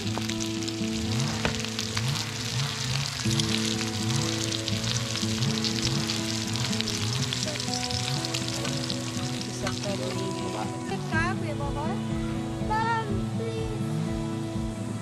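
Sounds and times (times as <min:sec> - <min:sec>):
food sizzling in a pan: 0:00.0 - 0:11.1.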